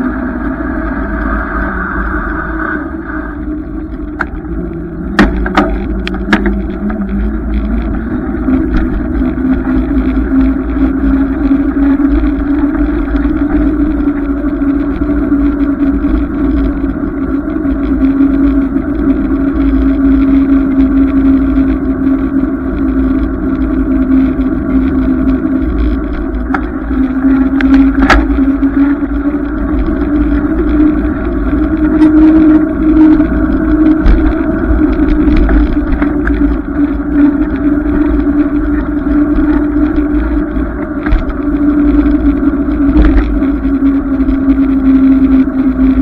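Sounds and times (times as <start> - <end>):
rising hum: 0.0 - 46.0
wind and road rumble: 0.0 - 46.0
sharp knocks: 5.2 - 6.5.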